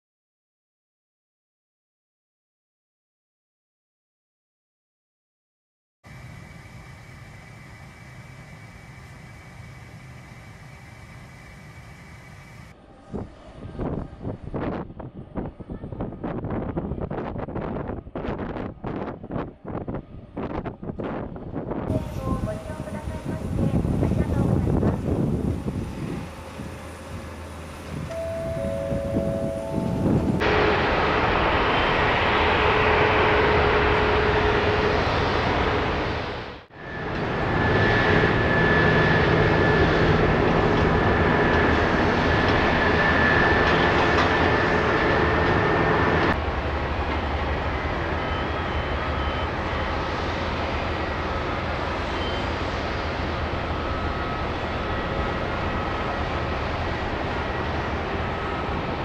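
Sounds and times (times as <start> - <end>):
faint high whine: 6.1 - 13.2, 26.5 - 35.8, 36.7 - 59.0
continuous roar: 6.1 - 59.0.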